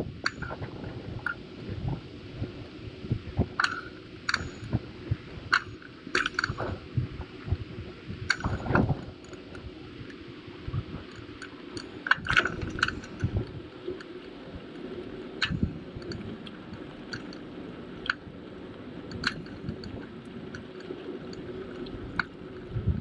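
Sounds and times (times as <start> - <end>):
wind and tyres rumbling: 0.0 - 23.0
bicycle clicks and rattles: 0.2 - 0.6, 3.6 - 4.8, 5.5 - 6.8, 11.2 - 13.5, 15.4 - 17.4, 19.1 - 22.3.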